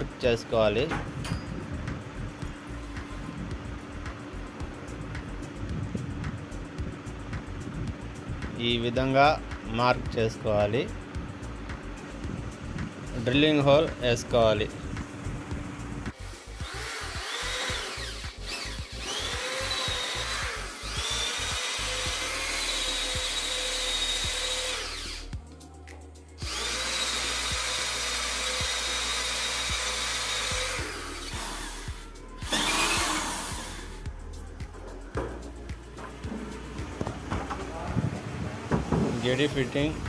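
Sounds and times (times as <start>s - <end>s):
cordless drill drilling into wood: 16.4s - 25.3s, 26.4s - 34.0s.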